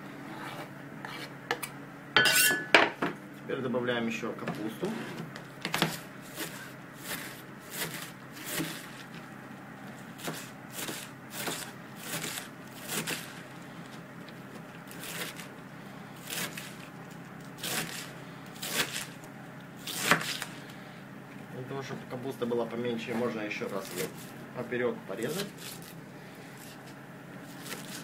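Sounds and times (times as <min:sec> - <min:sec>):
knife slicing cabbage on board: 0:04.9 - 0:09.2, 0:10.2 - 0:13.4, 0:14.9 - 0:15.5, 0:16.2 - 0:16.9, 0:17.6 - 0:19.2, 0:19.8 - 0:20.5, 0:23.6 - 0:24.4, 0:25.2 - 0:26.0, 0:26.6 - 0:28.0.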